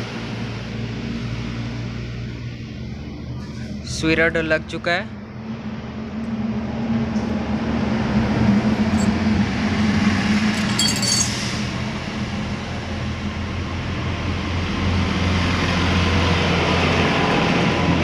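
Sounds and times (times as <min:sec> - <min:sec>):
small metal parts clinking: 0:08.9 - 0:09.2, 0:10.5 - 0:11.4.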